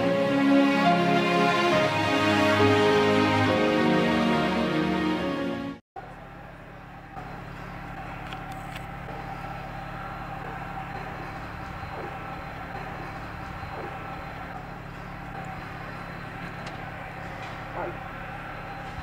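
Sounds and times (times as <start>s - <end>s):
jet engines whining at low thrust: 6.4s - 19.0s.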